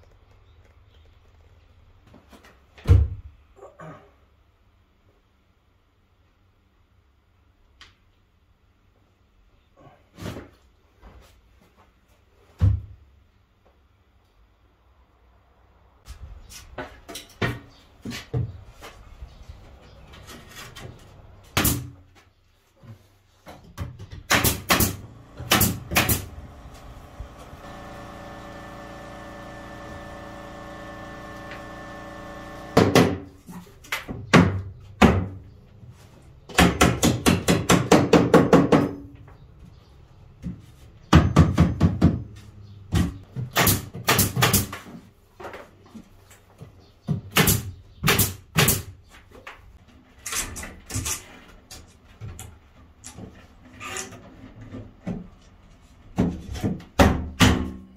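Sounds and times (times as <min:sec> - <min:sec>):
pneumatic nail gun shots: 0:21.6 - 0:21.9, 0:24.3 - 0:33.2, 0:43.6 - 0:44.8, 0:47.3 - 0:48.9
steady hum: 0:24.9 - 0:32.9.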